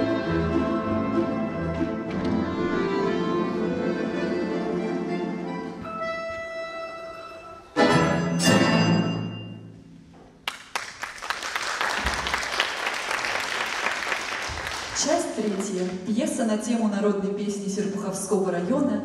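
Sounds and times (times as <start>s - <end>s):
folk orchestra playing chords: 0.0s - 9.8s
audience applause: 10.4s - 16.0s.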